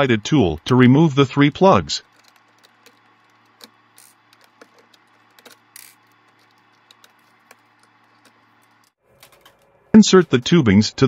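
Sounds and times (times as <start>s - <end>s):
low steady hum: 0.0s - 11.0s
small plastic parts clicking: 2.0s - 10.5s
plastic parts scraping: 2.0s - 10.7s.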